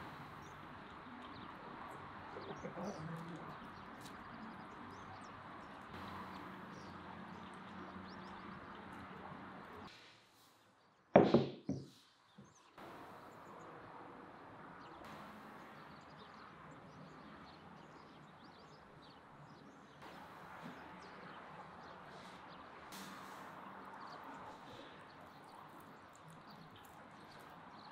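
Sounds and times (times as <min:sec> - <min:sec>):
sharp knocks: 0:11.2 - 0:11.9.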